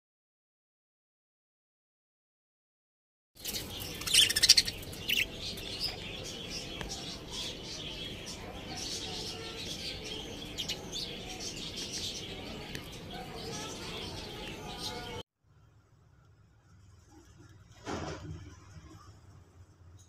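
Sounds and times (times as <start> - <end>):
budgerigars chirping: 3.4 - 15.2.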